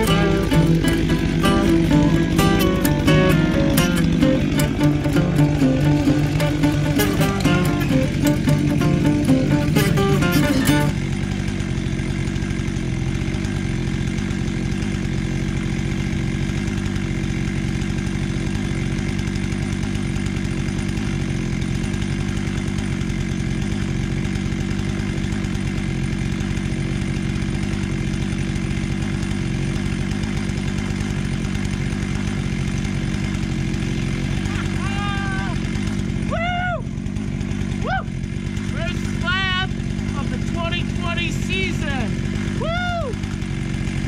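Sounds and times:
music: 0.0s - 11.0s
chainsaw idling: 0.0s - 44.0s.

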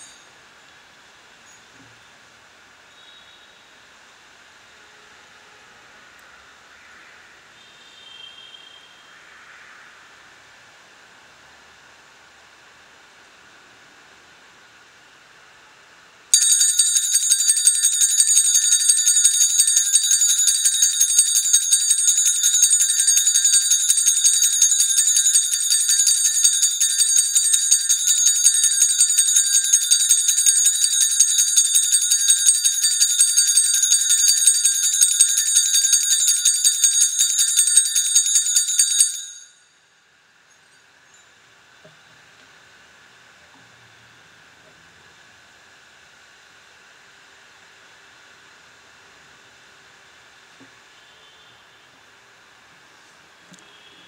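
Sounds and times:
small bells jingling: 16.4s - 39.6s.

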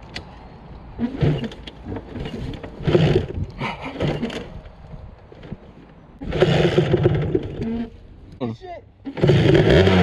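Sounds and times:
two-stroke engine revving: 1.0s - 4.5s, 6.2s - 7.9s, 9.1s - 10.0s.

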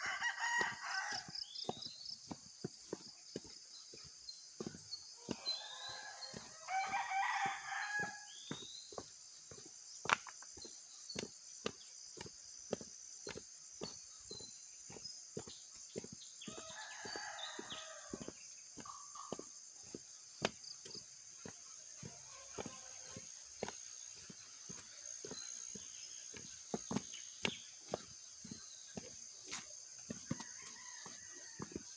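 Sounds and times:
rooster crowing: 0.0s - 1.4s, 5.2s - 8.3s, 16.4s - 18.3s, 30.3s - 31.9s
footsteps on dirt path: 0.0s - 31.9s.

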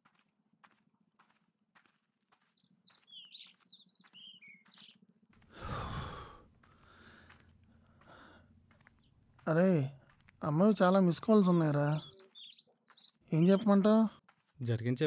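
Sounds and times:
small bird chirping: 2.5s - 5.1s, 10.4s - 14.2s
man sighing heavily: 5.5s - 7.4s.

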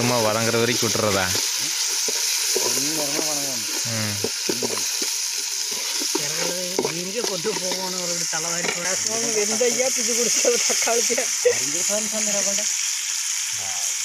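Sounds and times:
onions sizzling in hot oil: 0.0s - 14.0s
ladle stirring in a pot: 0.8s - 9.1s
background voices talking: 2.6s - 4.9s.

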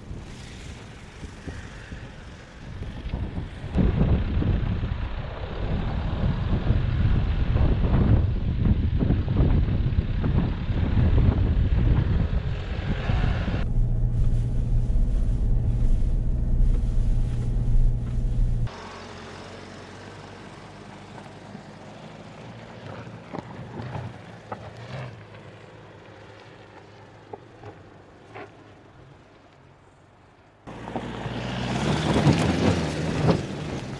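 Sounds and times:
wind noise: 0.0s - 18.7s
diesel engine droning: 8.6s - 28.0s.

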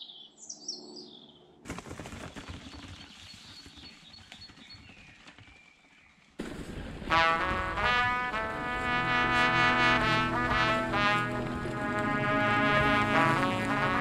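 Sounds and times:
birds chirping: 0.0s - 1.6s, 2.2s - 6.4s
mountain bike rattling on trail: 1.7s - 7.0s.

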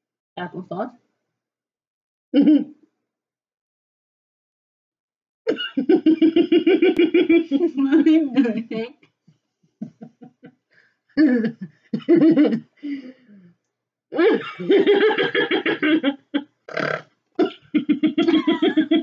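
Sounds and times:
women laughing hard: 5.6s - 8.6s, 11.2s - 13.1s, 14.2s - 16.4s, 17.8s - 19.0s.

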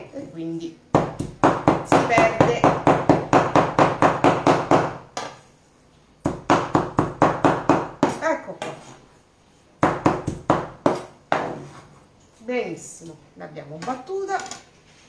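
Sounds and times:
knife chopping meat on wooden board: 1.0s - 5.4s, 6.3s - 8.8s, 9.8s - 11.6s.

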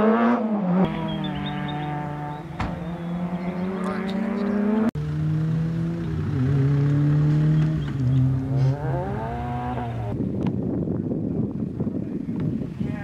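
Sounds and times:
car engine revving: 0.0s - 10.6s
wind noise on microphone: 8.5s - 13.0s.

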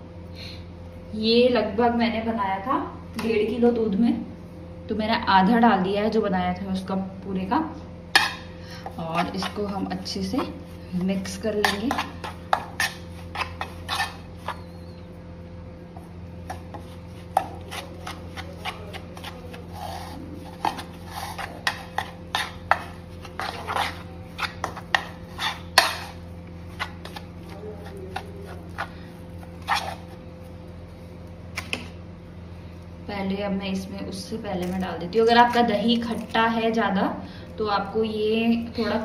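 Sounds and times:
spoon scraping and clinking bowl: 11.6s - 14.7s, 17.4s - 27.2s.

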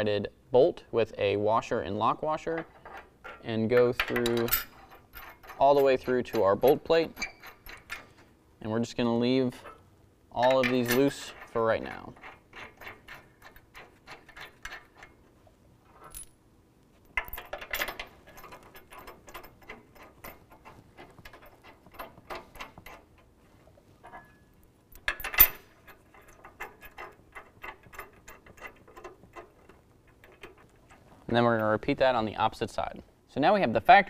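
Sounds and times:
bolts clinking against metal: 2.4s - 8.2s, 9.4s - 15.3s, 17.1s - 23.3s, 24.0s - 32.0s.

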